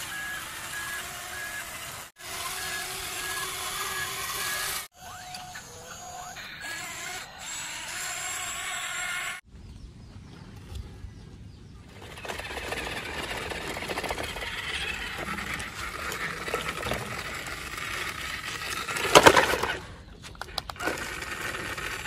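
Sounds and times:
small electric motor with rattling gears: 0.0s - 9.4s, 11.9s - 20.0s, 20.7s - 22.0s
sharp clicks: 12.2s - 22.0s.

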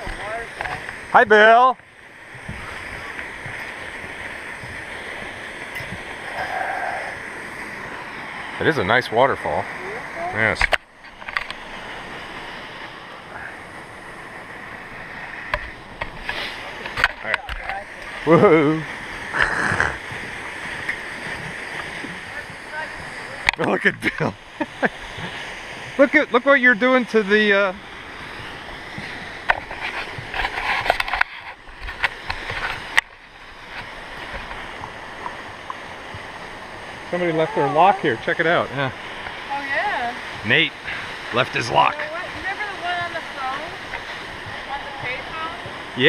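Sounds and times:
waterfall rushing: 0.0s - 46.0s
footsteps on wooden planks: 2.3s - 6.1s, 28.4s - 36.6s.

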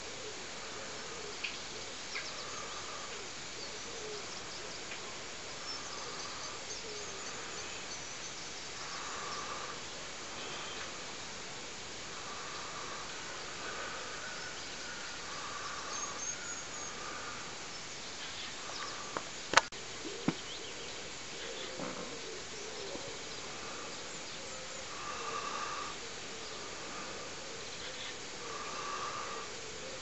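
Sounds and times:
faint distant calls: 0.0s - 30.0s
steady hiss: 0.0s - 30.0s
sharp clicks: 19.1s - 19.7s.

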